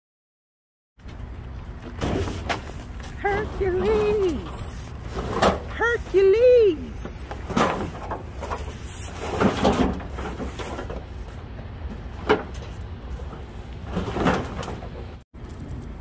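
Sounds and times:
cardboard boxes scraping and knocking: 0:07.0 - 0:11.4.

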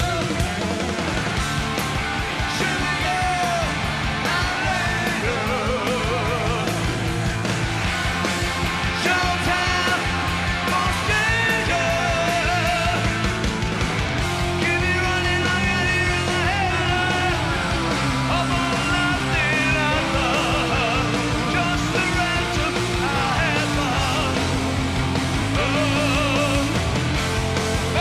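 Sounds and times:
man singing: 0:00.0 - 0:00.6, 0:02.4 - 0:07.2, 0:08.9 - 0:13.2, 0:14.6 - 0:24.6, 0:25.4 - 0:26.8
bass guitar: 0:00.0 - 0:28.0
distorted electric guitars: 0:00.0 - 0:28.0
drums: 0:00.0 - 0:28.0.

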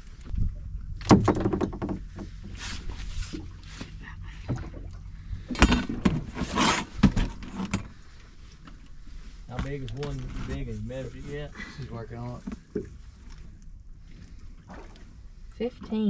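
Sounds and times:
low steady rumble: 0:00.0 - 0:16.0.

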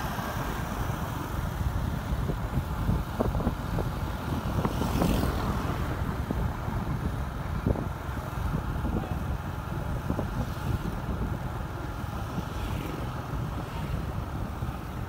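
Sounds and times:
vehicle engine and tyre noise: 0:00.0 - 0:15.0
wind buffeting microphone: 0:00.0 - 0:15.0.

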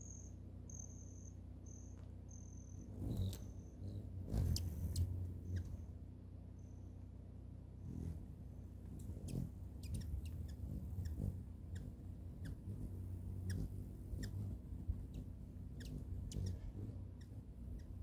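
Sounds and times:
steady low hum: 0:00.0 - 0:18.0
hummingbird chip calls: 0:02.4 - 0:06.0, 0:08.9 - 0:18.0.

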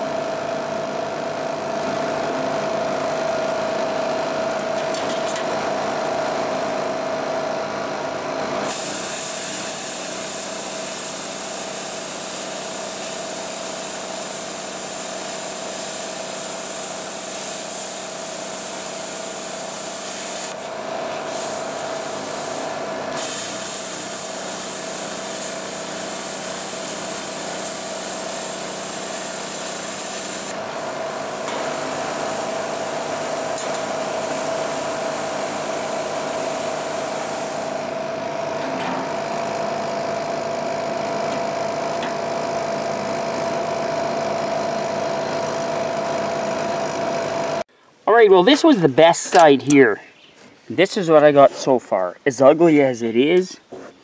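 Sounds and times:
plasma cutter arc hissing: 0:08.6 - 0:38.2
machine hum: 0:29.9 - 0:49.8.

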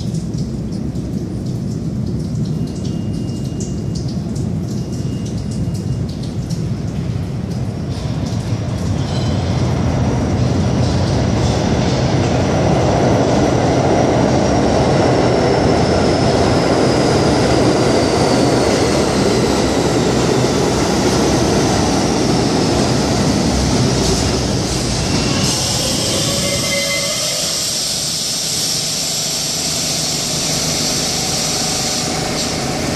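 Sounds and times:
train wheels rumbling on rails: 0:06.6 - 0:32.9.

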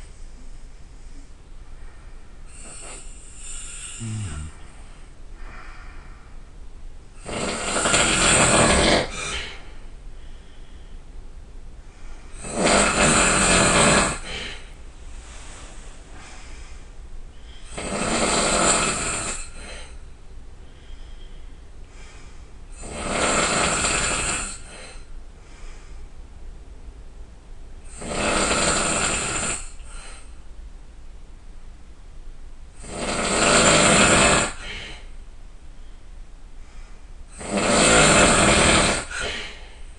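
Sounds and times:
person snoring loudly: 0:02.5 - 0:04.6, 0:07.2 - 0:09.6, 0:12.4 - 0:14.7, 0:17.6 - 0:19.9, 0:22.8 - 0:25.0, 0:27.9 - 0:30.2, 0:32.8 - 0:35.0, 0:37.3 - 0:39.6.

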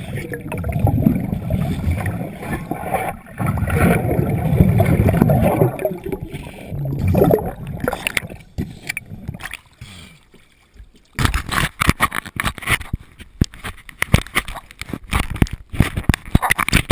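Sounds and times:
muffled underwater rumble: 0:00.0 - 0:09.4
water splashing and dripping: 0:00.0 - 0:12.4.

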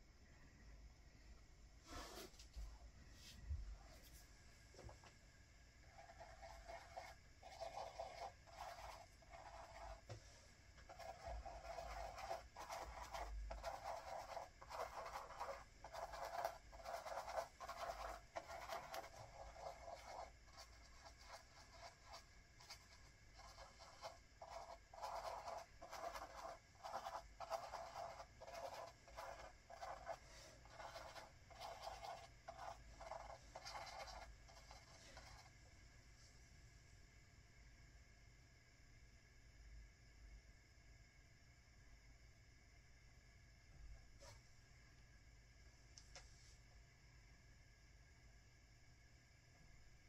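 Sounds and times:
brush scratching on canvas: 0:01.9 - 0:02.4, 0:05.9 - 0:10.2, 0:10.9 - 0:35.5.

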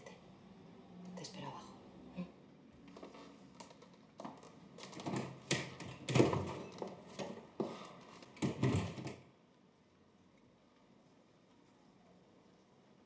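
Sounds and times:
door opening and shutting: 0:04.8 - 0:07.4, 0:08.3 - 0:09.3
footsteps: 0:06.3 - 0:08.6.

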